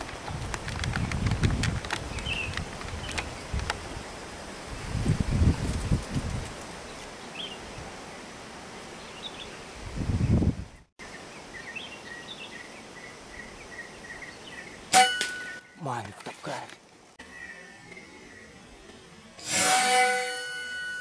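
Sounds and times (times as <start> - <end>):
wind on microphone: 0.0 - 6.9, 9.8 - 10.9
metallic ring: 14.9 - 15.8, 19.4 - 21.0.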